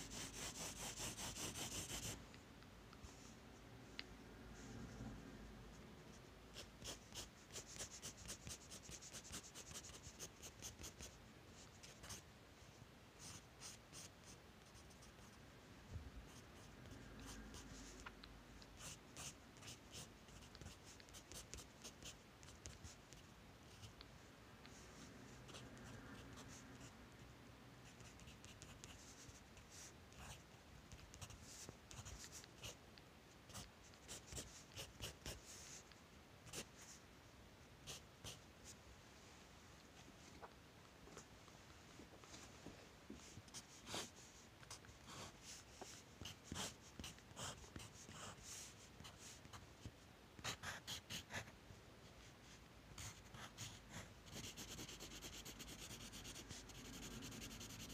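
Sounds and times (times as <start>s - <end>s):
pencil scratching on paper: 0.0s - 2.2s, 6.2s - 12.2s, 13.2s - 15.3s, 18.8s - 23.0s, 27.9s - 32.8s, 33.5s - 35.8s, 43.5s - 44.1s, 44.8s - 49.6s, 50.4s - 51.5s, 53.0s - 57.9s.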